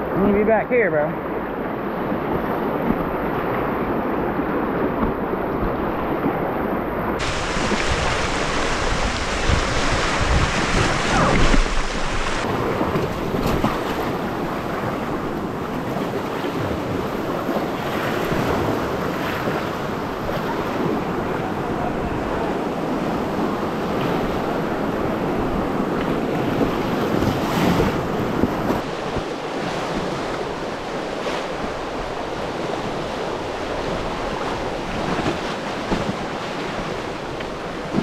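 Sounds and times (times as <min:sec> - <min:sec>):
water splashing against boat: 0:00.4 - 0:38.0
wind buffeting microphone: 0:01.3 - 0:38.0
whitewater rapids rushing: 0:07.2 - 0:25.9.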